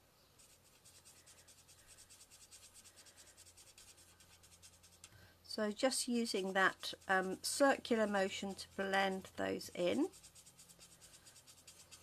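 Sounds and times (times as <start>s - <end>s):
marker scratching on card: 0.4s - 5.1s, 6.4s - 12.0s.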